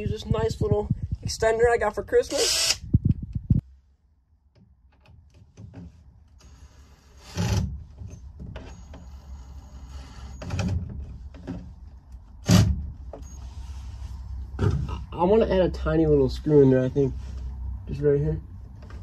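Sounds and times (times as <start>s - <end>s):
cordless drill driving screws: 2.3s - 2.8s.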